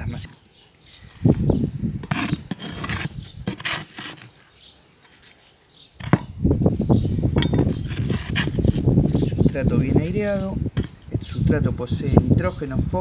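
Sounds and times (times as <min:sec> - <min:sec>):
soil pressed into plastic pots: 0:01.0 - 0:05.4, 0:06.0 - 0:06.5, 0:07.2 - 0:11.6
trowel scraping potting mix: 0:01.1 - 0:06.3, 0:07.4 - 0:11.4.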